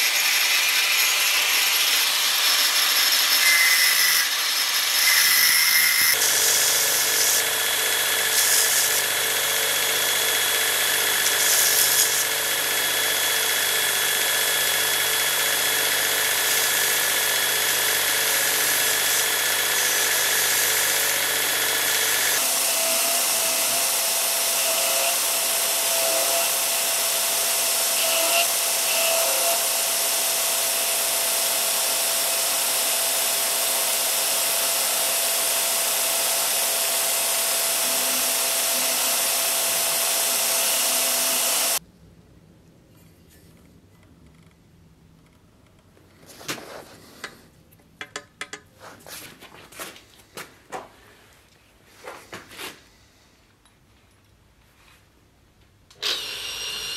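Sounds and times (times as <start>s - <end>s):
angle grinder grinding metal: 0.0s - 41.8s
belt grinder running: 0.0s - 41.8s, 56.0s - 56.9s.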